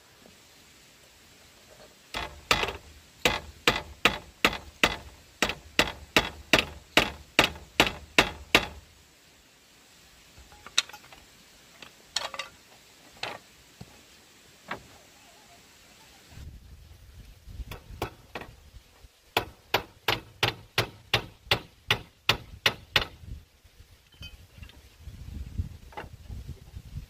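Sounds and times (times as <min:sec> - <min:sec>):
hammering on bamboo: 0:02.1 - 0:08.8, 0:17.6 - 0:18.6, 0:19.3 - 0:23.2.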